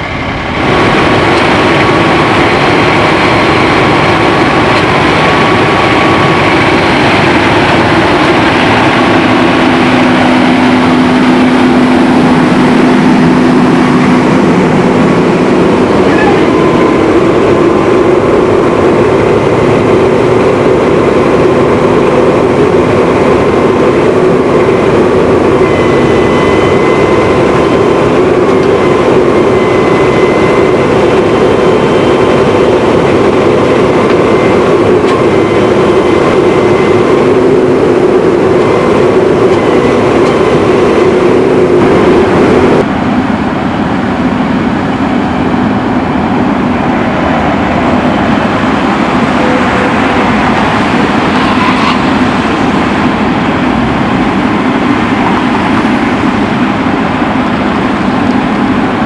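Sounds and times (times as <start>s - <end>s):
hydraulic whining: 0.0s - 42.9s
diesel engine droning: 0.0s - 59.0s.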